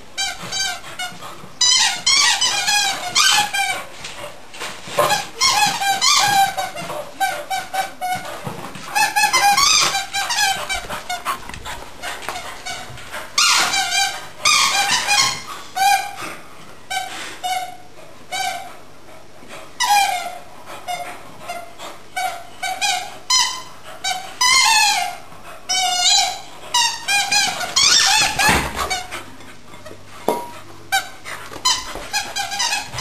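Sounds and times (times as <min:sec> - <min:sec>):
squeaky dog toy squeaking: 0:01.6 - 0:03.8, 0:05.1 - 0:08.3, 0:09.0 - 0:10.8, 0:12.6 - 0:16.1, 0:22.2 - 0:29.0, 0:30.9 - 0:33.0.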